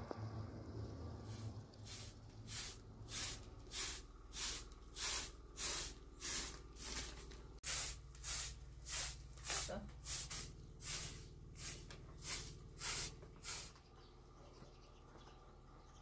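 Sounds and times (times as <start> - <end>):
broom sweeping dusty floor: 1.2 - 13.8.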